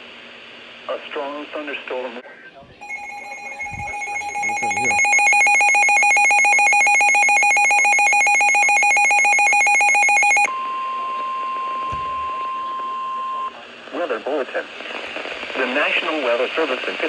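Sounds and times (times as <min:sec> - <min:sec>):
steady alarm tone: 0:02.8 - 0:10.5
warbling high-pitched alarm: 0:02.8 - 0:10.5.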